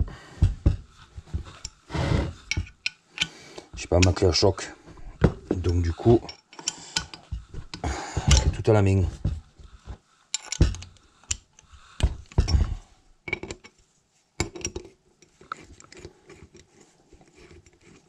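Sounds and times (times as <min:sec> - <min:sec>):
metal tools clinking: 0:05.6 - 0:08.9, 0:10.4 - 0:11.4.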